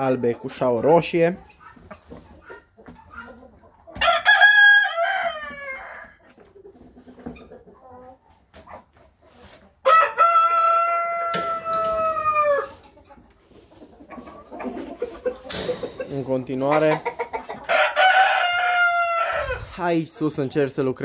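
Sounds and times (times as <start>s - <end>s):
hen clucking: 0.0s - 21.0s
rooster crowing: 9.8s - 12.7s, 17.7s - 19.6s.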